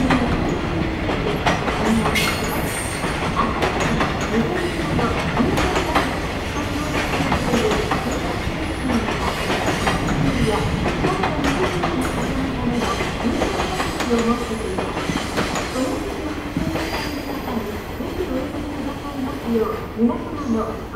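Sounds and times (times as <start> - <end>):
train wheels clattering over rail joints: 0.0 - 15.9.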